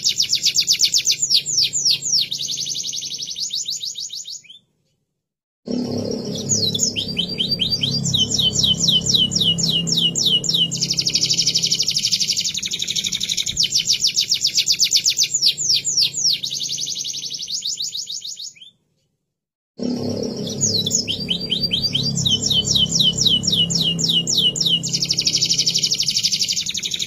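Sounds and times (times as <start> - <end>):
canary singing trills: 0.0 - 4.6, 5.8 - 18.8, 20.1 - 27.0
faint low hum: 5.8 - 14.2, 20.0 - 27.0.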